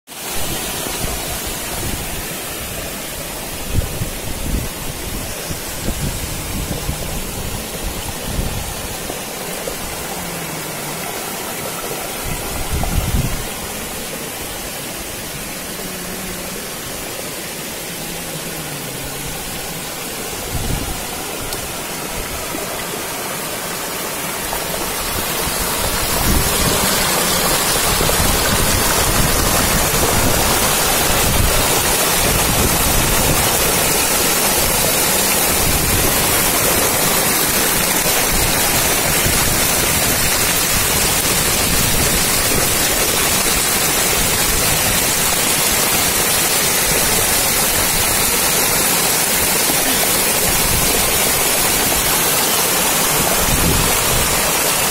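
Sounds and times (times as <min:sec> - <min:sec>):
running water rushing: 0:00.1 - 0:54.9.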